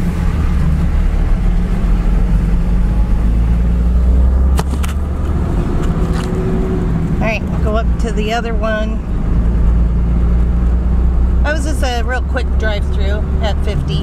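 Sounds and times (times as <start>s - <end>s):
vehicle engine and road rumble: 0.0s - 14.0s.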